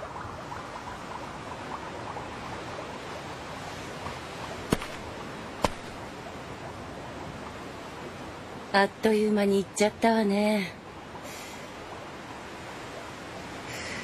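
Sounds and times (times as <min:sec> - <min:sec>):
seaside ambience hiss: 0:00.0 - 0:14.0
footsteps on grass: 0:04.7 - 0:05.0, 0:05.6 - 0:06.0.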